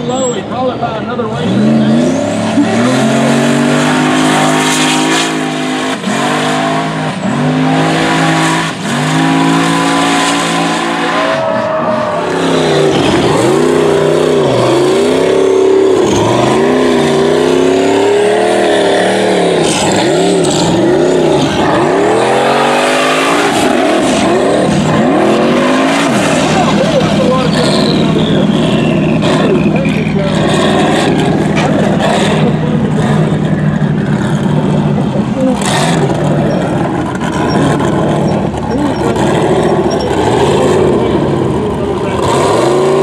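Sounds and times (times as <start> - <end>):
buggy engines revving: 0.0 - 43.0.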